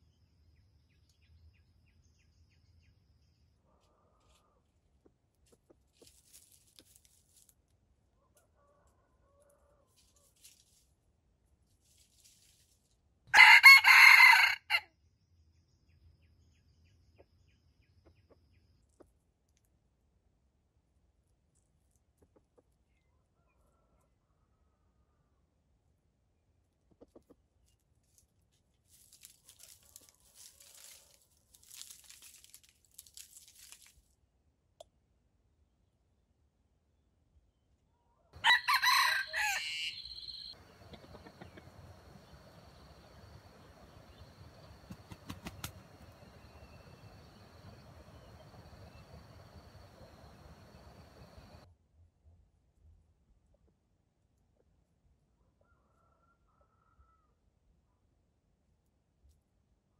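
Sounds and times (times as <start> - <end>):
rooster pecking on leaves: 5.9 - 7.6, 28.0 - 34.0, 40.6 - 51.6
rustle of dry leaf litter: 5.9 - 7.7, 9.9 - 11.0, 11.6 - 13.9, 28.0 - 34.1, 39.2 - 51.6.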